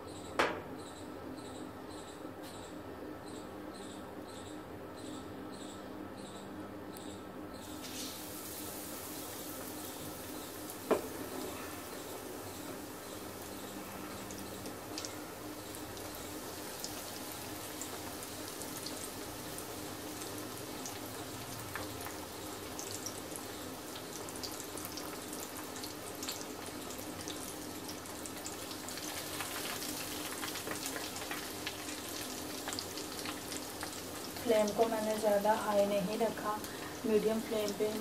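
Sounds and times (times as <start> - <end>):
chicken wings deep-frying in oil: 7.6 - 38.0.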